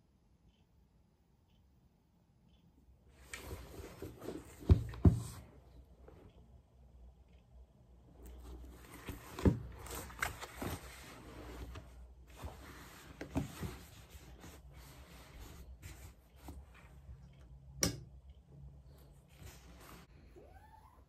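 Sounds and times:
pages rustling: 8.4s - 14.0s.

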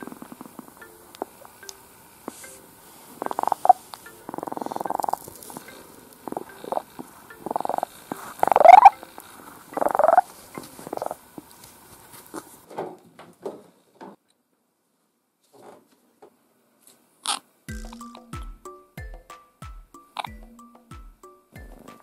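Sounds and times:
kitten purring: 0.0s - 11.6s.

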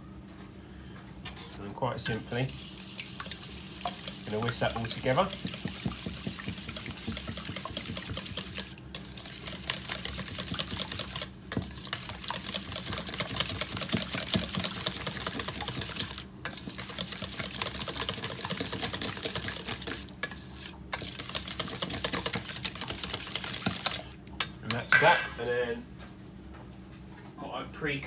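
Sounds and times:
whisk clicking against metal bowl: 3.1s - 25.0s.

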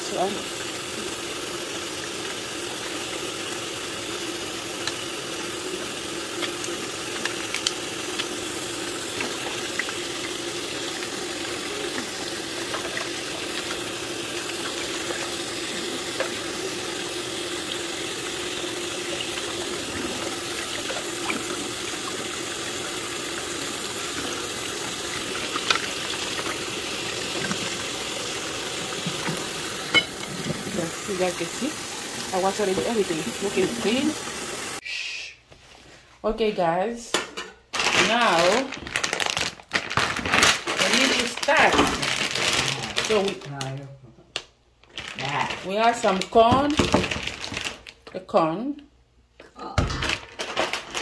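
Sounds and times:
tap water running into metal pot: 0.0s - 34.8s
small clicks and splashes: 6.3s - 8.4s, 25.1s - 27.8s.

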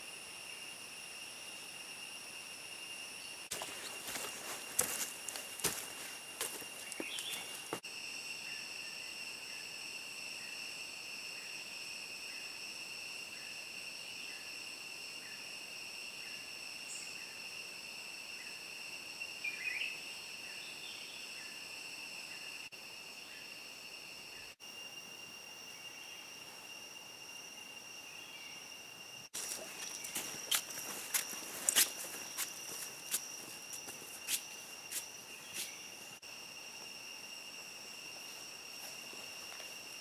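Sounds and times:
insect drone: 0.0s - 40.0s
light footsteps or clicks: 29.4s - 35.7s.

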